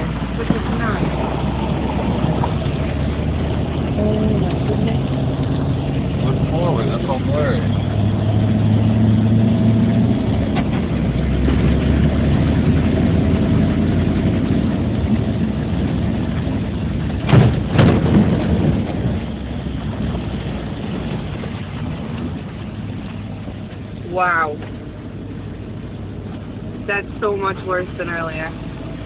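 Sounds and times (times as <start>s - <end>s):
car engine running: 0.0s - 29.0s
loud thumps: 17.0s - 22.1s.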